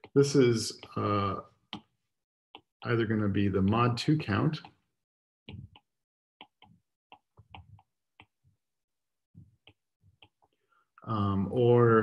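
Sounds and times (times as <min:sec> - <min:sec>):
stylus tapping on tablet: 0:01.7 - 0:01.9, 0:05.5 - 0:08.4, 0:09.4 - 0:10.6.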